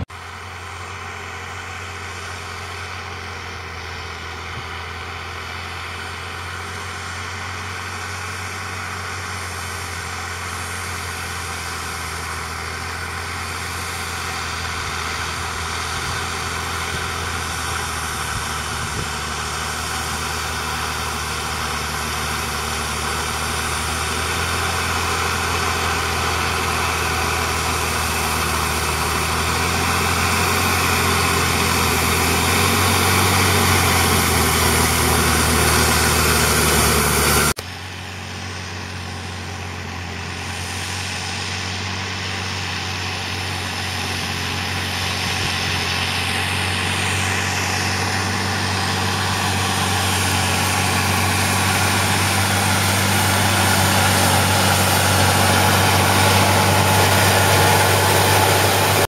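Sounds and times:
diesel tractor engine running: 0.0s - 59.0s
heavy noise: 43.4s - 59.0s.

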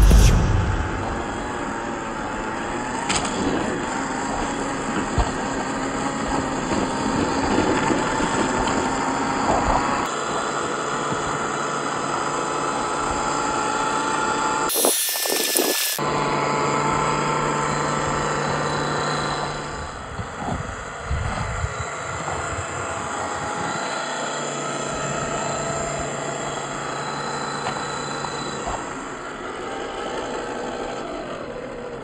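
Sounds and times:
burst of hiss: 0.0s - 1.5s, 14.7s - 16.0s
electric motor and gears whining: 14.5s - 19.8s.

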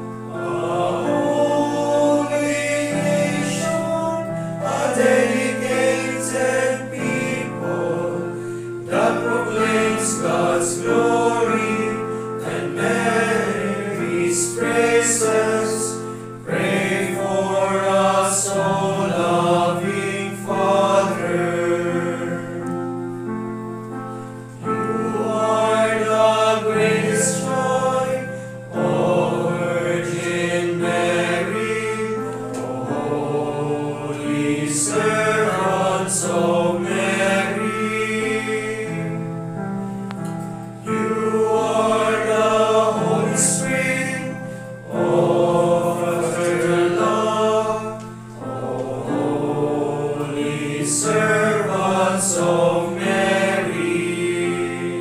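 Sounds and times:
male choir singing a hymn: 0.0s - 23.4s, 24.0s - 55.0s
singers breathing: 8.4s - 8.8s, 12.1s - 12.4s, 44.4s - 44.8s.

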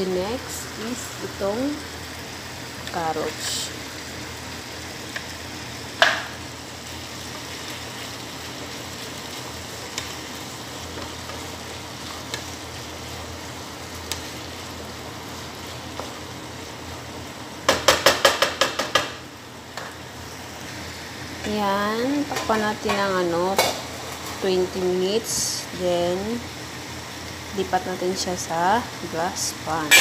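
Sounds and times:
food sizzling in a frying pan: 0.0s - 30.0s
utensil tapping on pan: 6.0s - 6.3s, 17.7s - 19.2s
spatula knocking against pan: 17.7s - 19.2s.

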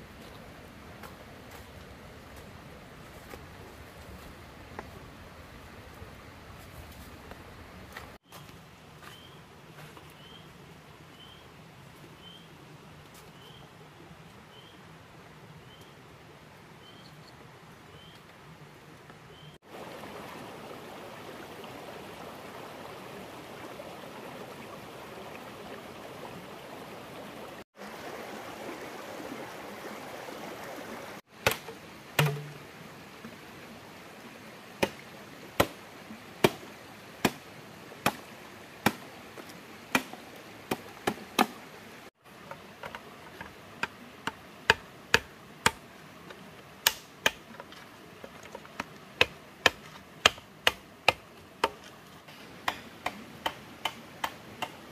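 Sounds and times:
stream rushing: 17.4s - 54.9s
blade chopping wood: 31.4s - 32.6s, 46.8s - 47.4s, 49.2s - 51.8s.

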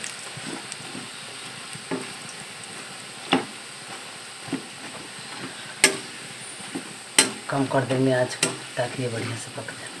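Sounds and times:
peanuts sizzling in hot oil: 0.0s - 10.0s
metal spoon clanking against pan: 5.8s - 6.2s, 7.1s - 8.8s.

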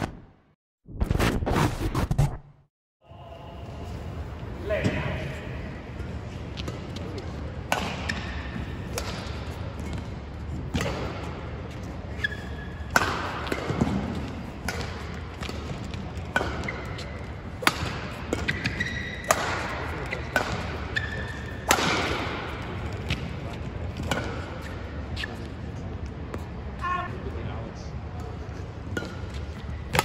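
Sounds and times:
racket hitting shuttlecock: 7.6s - 10.0s, 10.7s - 11.4s, 12.2s - 23.4s, 24.0s - 24.8s, 28.9s - 30.0s
shoes squeaking on court: 10.9s - 12.9s, 14.2s - 21.7s, 22.6s - 26.5s.

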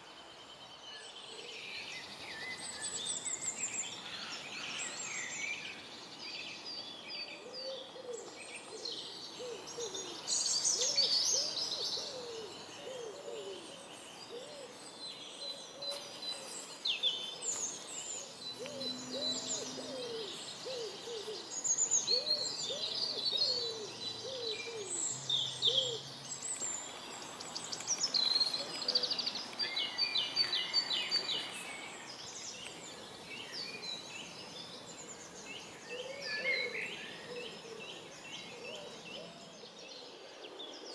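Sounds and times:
songbirds chirping and trilling: 0.0s - 40.9s
woodpigeon cooing: 7.4s - 14.8s, 18.6s - 21.5s, 22.1s - 25.0s.

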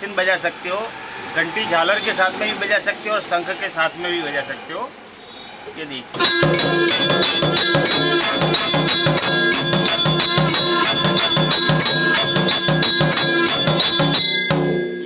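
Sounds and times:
bell being struck: 6.2s - 15.0s
drum beating: 6.2s - 15.0s
gong plate being struck: 6.2s - 15.0s.

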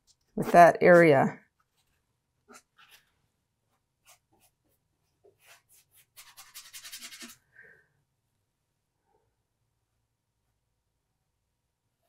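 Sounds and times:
paintbrush strokes on canvas: 0.0s - 7.4s
paintbrush scrubbing: 0.0s - 7.5s.

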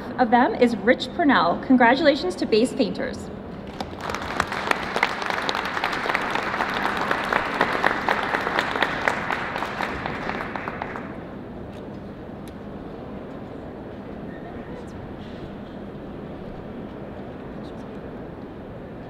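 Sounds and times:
audience applauding: 3.7s - 11.2s.

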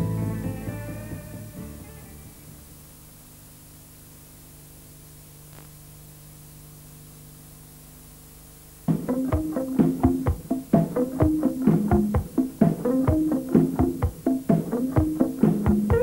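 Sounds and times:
tape hiss: 0.0s - 16.0s
music with plucked notes: 8.9s - 16.0s.

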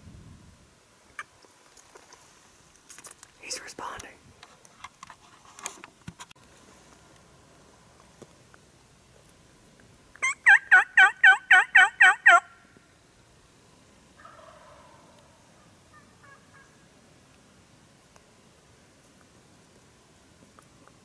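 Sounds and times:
wild turkey yelps: 10.2s - 12.6s, 14.2s - 16.8s.

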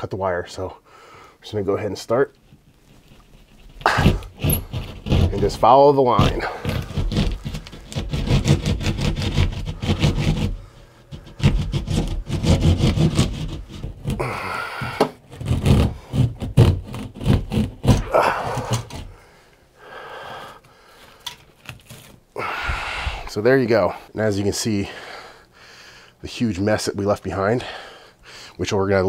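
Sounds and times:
hand saw rasping through drywall: 3.3s - 19.2s.

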